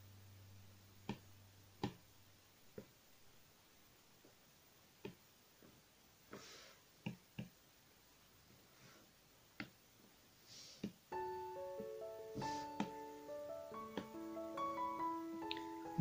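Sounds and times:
soft piano music: 0:11.1 - 0:16.0
stylus tapping on tablet screen: 0:13.8 - 0:14.2.

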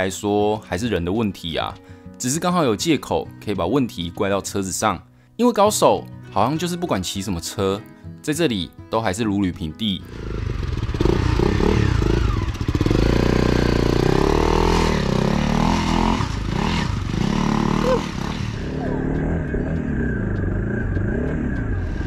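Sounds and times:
dirt bike engine revving: 0:10.0 - 0:22.0.

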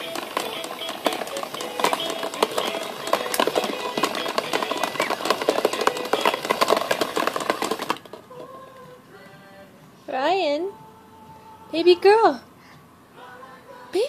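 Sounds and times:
plastic balls clattering in dome: 0:00.0 - 0:08.3.

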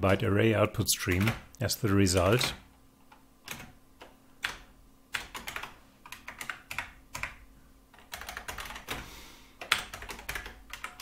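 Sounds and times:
keyboard typing clicks: 0:02.2 - 0:09.0, 0:09.6 - 0:11.0.

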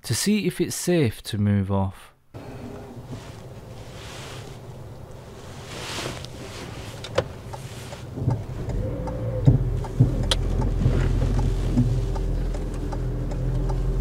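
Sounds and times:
car cabin hum: 0:02.4 - 0:14.0
engine and tyres rumbling: 0:02.4 - 0:14.0
sharp clicks: 0:08.2 - 0:14.0.

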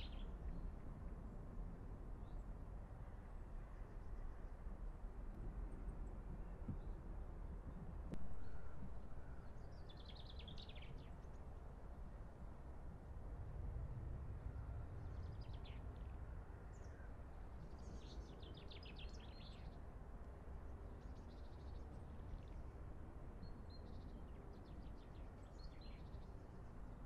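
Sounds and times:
low outdoor rumble: 0:04.9 - 0:10.0, 0:12.5 - 0:23.5.

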